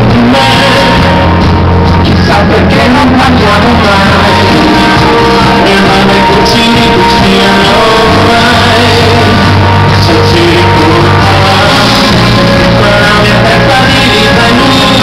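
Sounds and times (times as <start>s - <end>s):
live band music: 0.0s - 15.0s
man singing into microphone: 0.0s - 15.0s.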